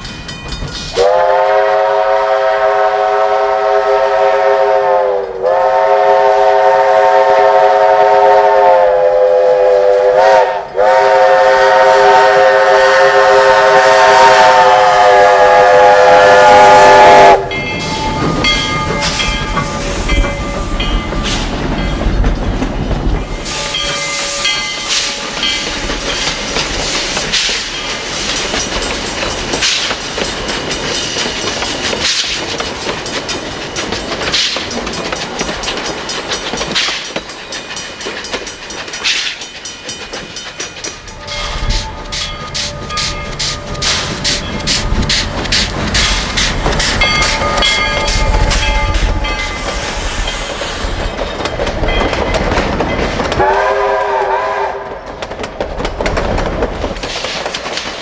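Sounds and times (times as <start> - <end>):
bell ringing: 0.0 - 1.0, 17.5 - 22.1, 23.3 - 26.6, 39.5 - 45.0, 46.9 - 50.5
steam locomotive chime whistle: 0.0 - 21.9, 23.3 - 28.1, 40.6 - 50.8, 53.4 - 55.0
train rail clatter: 0.0 - 58.0.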